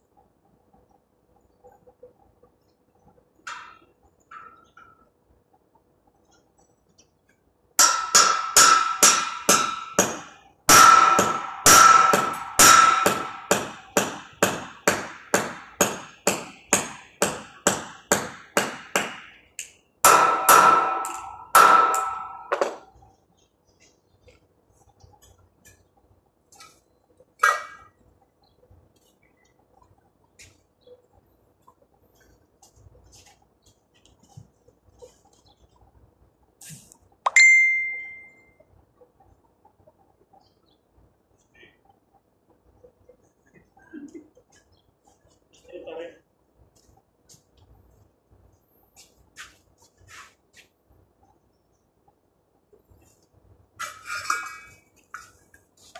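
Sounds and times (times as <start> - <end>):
hammer striking steel tube: 7.8 - 19.4, 20.0 - 22.8.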